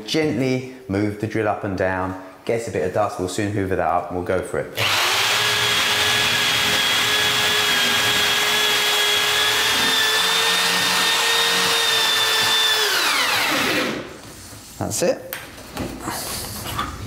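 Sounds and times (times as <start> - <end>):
drill motor whine: 4.8 - 14.0.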